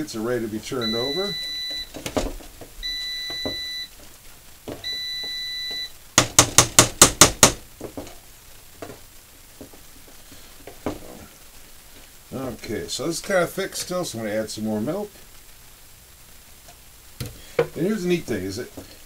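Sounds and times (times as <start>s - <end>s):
air fryer timer beeping: 0.8s - 1.9s, 2.8s - 3.9s, 4.8s - 5.9s.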